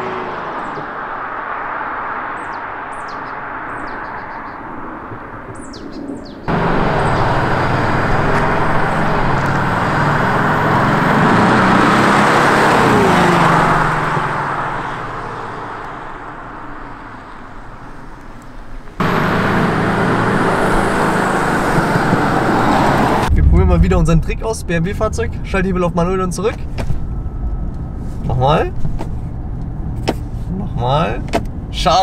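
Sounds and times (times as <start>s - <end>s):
car exhaust driving past: 6.5s - 18.0s, 19.0s - 30.5s.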